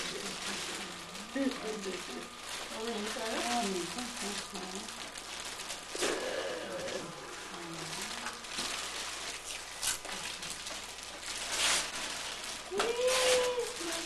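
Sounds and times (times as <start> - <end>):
wrapping paper rustling: 0.0 - 14.0
faint voices: 5.9 - 8.6, 12.6 - 14.0.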